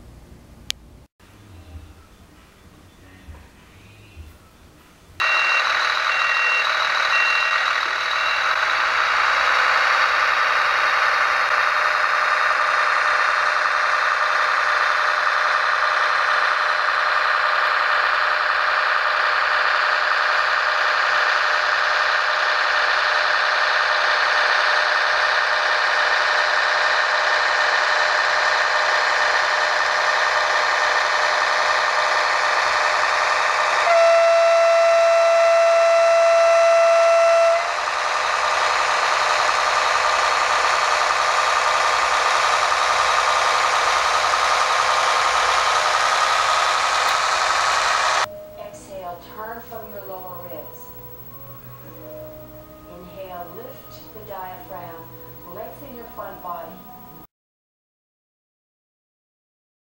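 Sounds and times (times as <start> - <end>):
model train diesel engine sound: 5.1 - 57.3
motor and wheel noise: 5.2 - 48.3
model train horn blast: 33.7 - 38.0.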